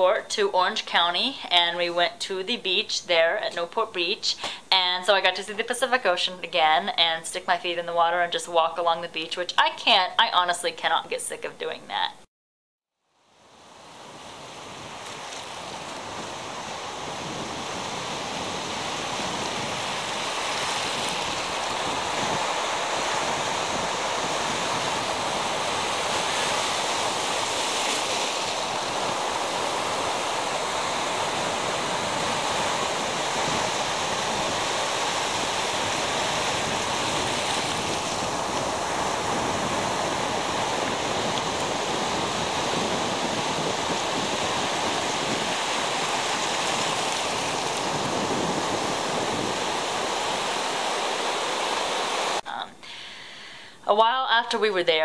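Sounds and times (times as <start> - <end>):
surf breaking on a sandy beach: 13.6 - 52.4.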